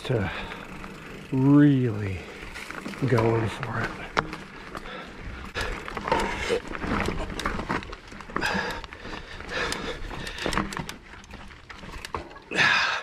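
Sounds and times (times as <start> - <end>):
bike tyres and drivetrain clatter: 0.0 - 13.0
person breathing hard: 4.7 - 6.7, 8.3 - 10.8.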